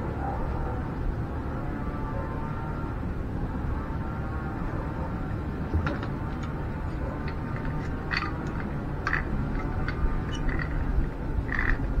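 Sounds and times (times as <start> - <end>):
low background rumble: 0.0 - 12.0
metal fittings clicking and clinking: 7.2 - 11.9.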